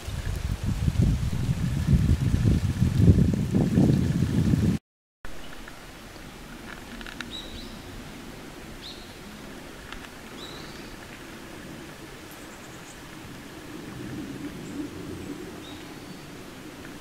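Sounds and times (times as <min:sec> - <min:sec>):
outdoor background hiss: 0:05.3 - 0:17.0.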